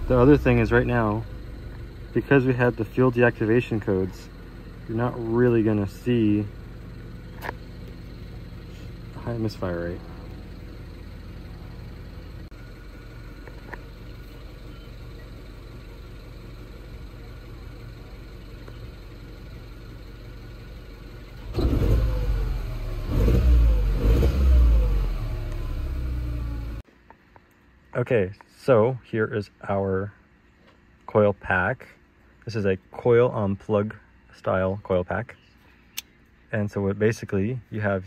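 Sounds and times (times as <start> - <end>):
car engine idling and revving: 0.0 - 27.0.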